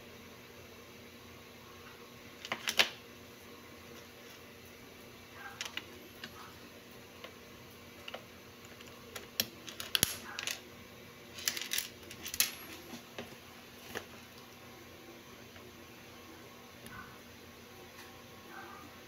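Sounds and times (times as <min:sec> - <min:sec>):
small metal parts clicking: 0:08.0 - 0:10.6, 0:11.4 - 0:12.7.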